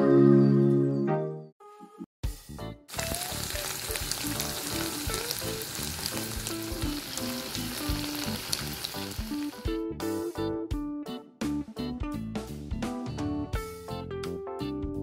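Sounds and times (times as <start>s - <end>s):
tofu sizzling in oil: 2.9s - 9.7s.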